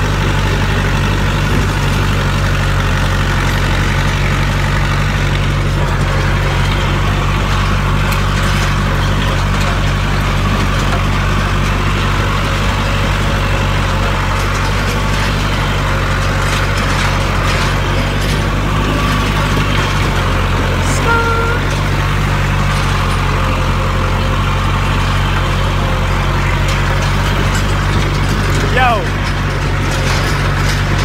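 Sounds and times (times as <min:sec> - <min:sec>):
tractor engine droning: 0:00.0 - 0:31.0
brief higher-pitched tone: 0:20.8 - 0:21.7.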